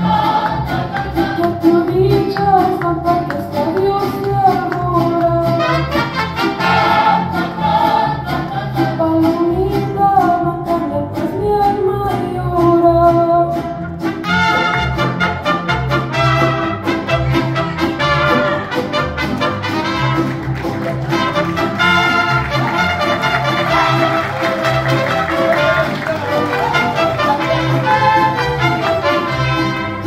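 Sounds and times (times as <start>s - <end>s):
violins: 0.0s - 30.0s
trumpets: 5.6s - 7.8s, 14.0s - 30.0s.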